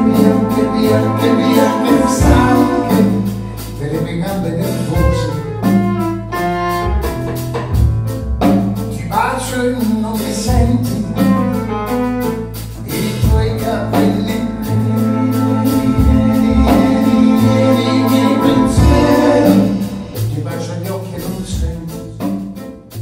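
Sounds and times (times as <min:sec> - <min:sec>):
man singing: 0:00.0 - 0:05.8, 0:08.9 - 0:11.5, 0:12.8 - 0:22.4
saxophone: 0:00.0 - 0:07.8, 0:11.2 - 0:20.4
double bass: 0:00.0 - 0:23.0.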